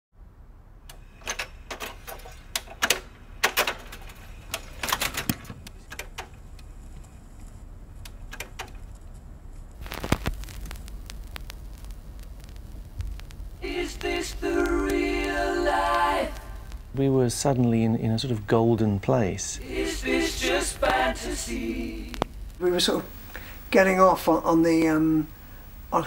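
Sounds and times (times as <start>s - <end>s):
record surface noise and rumble: 0.2s - 26.0s
stylus dropping onto record: 9.7s - 17.0s
record clicking onto turntable: 9.8s - 16.9s, 19.9s - 22.5s.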